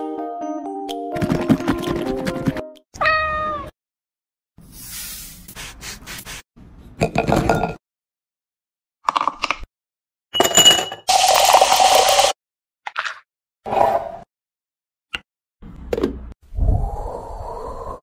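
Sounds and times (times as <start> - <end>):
cat meowing: 3.0 - 3.7
ice cubes clinking into a glass: 10.4 - 12.3.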